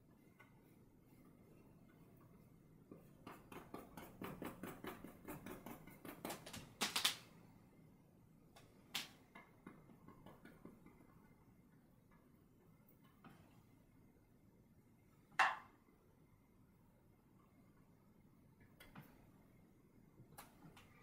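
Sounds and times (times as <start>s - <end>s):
paintbrush tapping: 2.9s - 6.9s.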